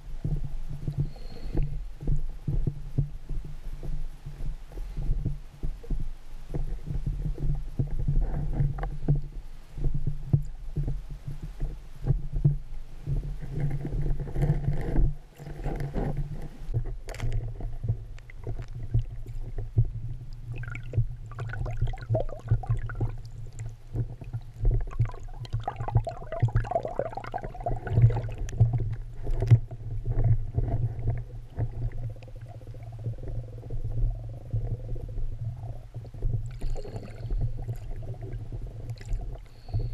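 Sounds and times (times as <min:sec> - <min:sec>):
underwater low hum: 0:00.0 - 0:39.9
gurgling exhaled bubbles: 0:20.4 - 0:39.9.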